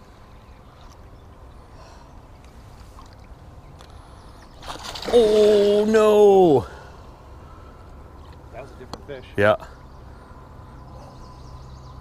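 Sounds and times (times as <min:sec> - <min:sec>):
water trickling and gurgling: 0:00.0 - 0:06.0.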